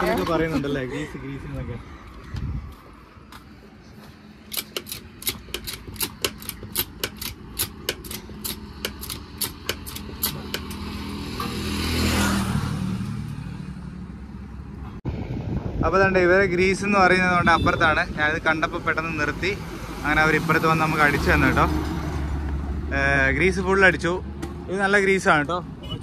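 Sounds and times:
vehicle passing by: 0:10.0 - 0:15.7, 0:18.7 - 0:24.7.

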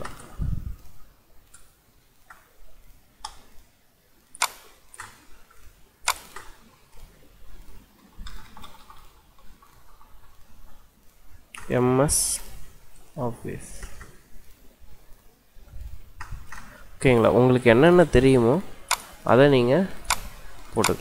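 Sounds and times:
mouse and keyboard clicks: 0:06.0 - 0:06.6, 0:18.9 - 0:19.2, 0:20.0 - 0:21.0.

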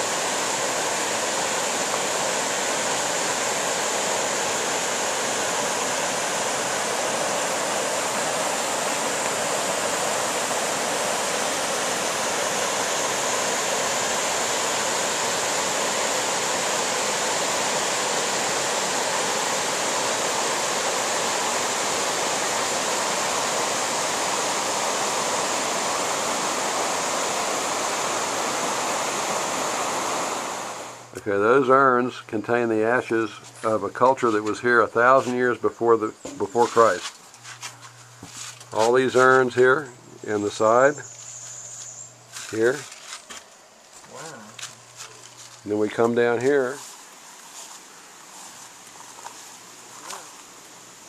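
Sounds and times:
stream rushing over rocks: 0:00.0 - 0:31.1.

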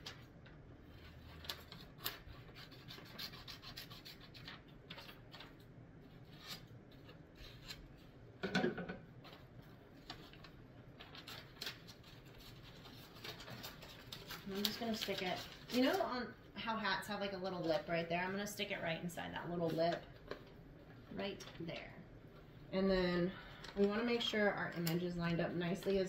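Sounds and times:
paper rustling and crinkling: 0:00.0 - 0:07.8, 0:09.2 - 0:16.1
scissors cutting paper: 0:00.9 - 0:05.5, 0:11.1 - 0:16.1.

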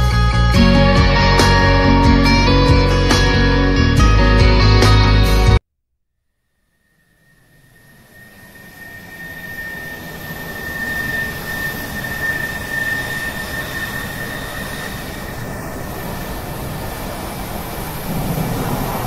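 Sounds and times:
high engine whine: 0:06.6 - 0:19.0
jet engine roar in cabin: 0:06.9 - 0:19.0.

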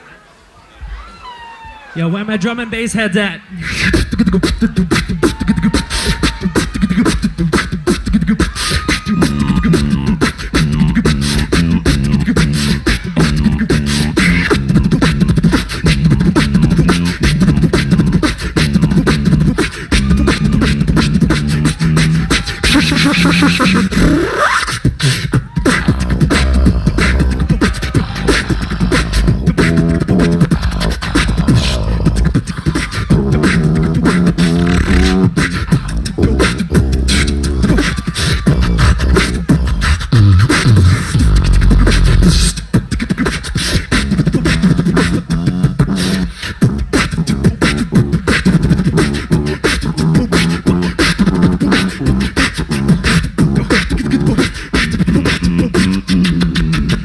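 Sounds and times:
beatboxing into microphones: 0:02.8 - 0:57.0.

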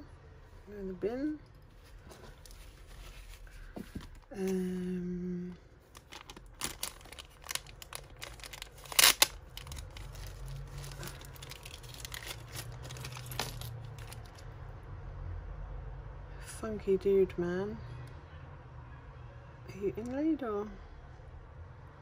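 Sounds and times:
plastic packaging crinkling: 0:05.8 - 0:14.4.

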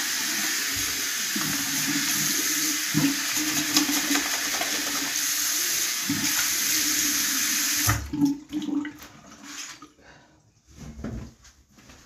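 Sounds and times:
tap water running into sink: 0:00.0 - 0:09.3.

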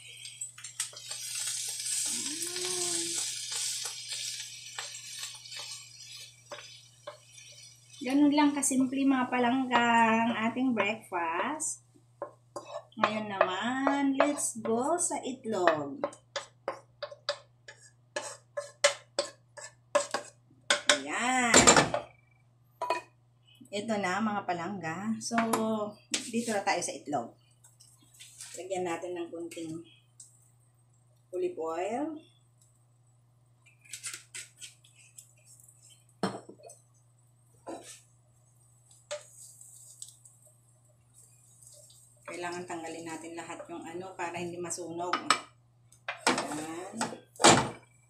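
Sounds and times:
spatula scraping a frying pan: 0:00.8 - 0:08.6, 0:12.5 - 0:13.2, 0:16.1 - 0:21.0, 0:37.6 - 0:38.1, 0:38.9 - 0:40.2, 0:46.2 - 0:47.0.

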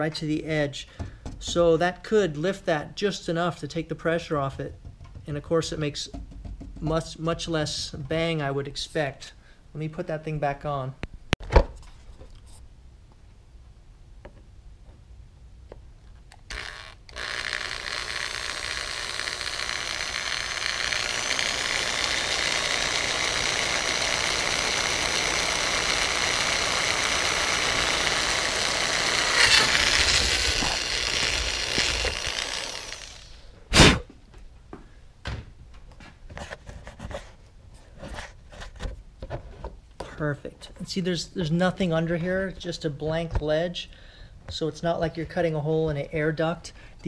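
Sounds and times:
electric power tool whine: 0:16.4 - 0:33.6.

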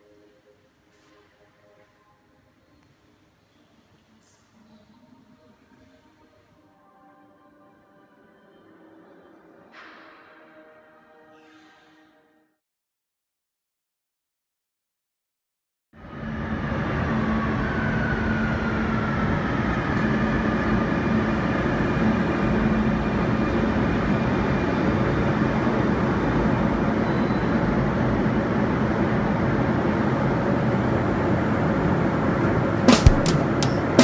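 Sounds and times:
metro train rumbling: 0:16.0 - 0:34.0.

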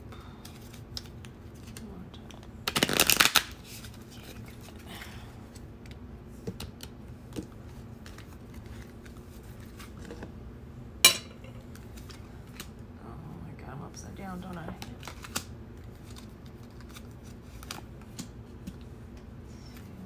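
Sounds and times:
cards being shuffled: 0:00.4 - 0:04.8, 0:06.4 - 0:10.1, 0:14.5 - 0:18.9.

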